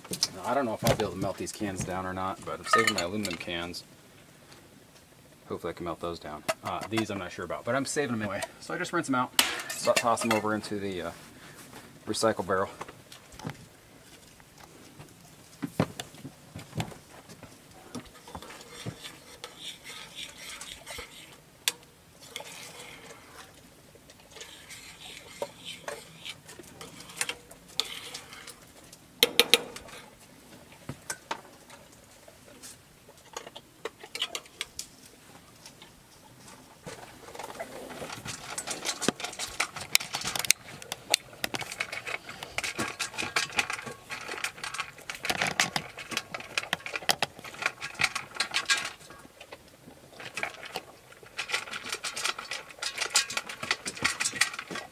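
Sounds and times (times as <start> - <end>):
metal spoon stirring in saucepan: 2.5 - 3.5, 9.5 - 10.8, 18.0 - 30.2, 37.4 - 49.2
dog chewing dry kibble: 37.0 - 54.9.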